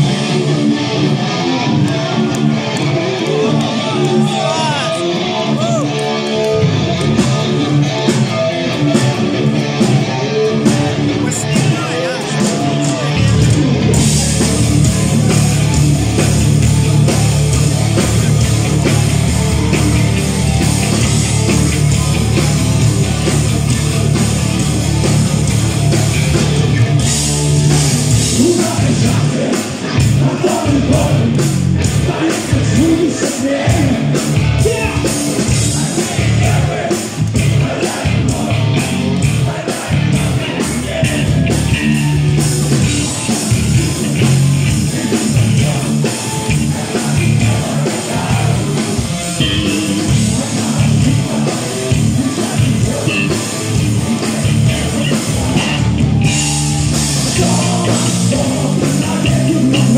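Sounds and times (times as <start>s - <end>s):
electric guitar: 0.0s - 59.9s
heavy metal band playing live: 0.0s - 59.9s
person singing: 28.1s - 42.2s, 44.7s - 59.9s.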